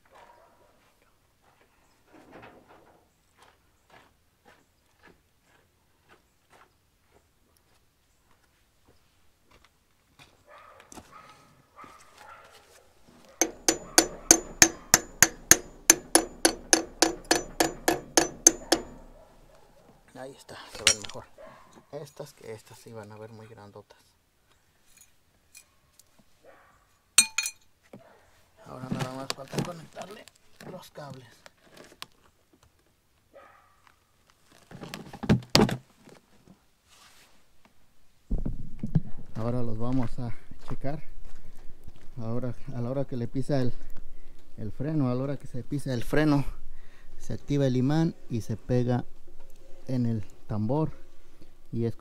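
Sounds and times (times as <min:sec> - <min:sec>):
hammer tapping on metal: 0:13.4 - 0:19.3, 0:20.8 - 0:21.2, 0:27.2 - 0:27.6
heavy metal knocks and clunks: 0:13.4 - 0:19.4.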